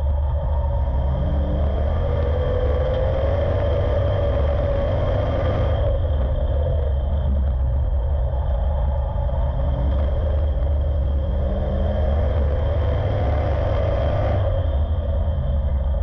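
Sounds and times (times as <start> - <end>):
racing engine rumbling: 0.0 - 16.0.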